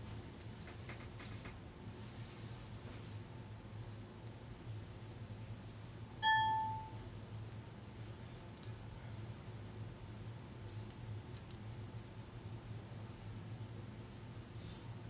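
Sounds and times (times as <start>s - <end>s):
short electronic chime: 6.2s - 6.9s.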